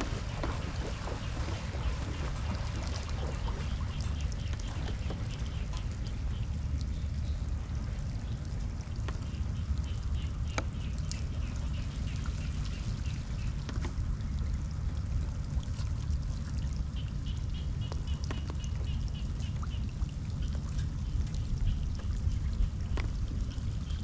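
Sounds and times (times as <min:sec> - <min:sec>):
floodwater rushing: 0:00.0 - 0:17.0
rain drips and splashes: 0:00.0 - 0:24.0.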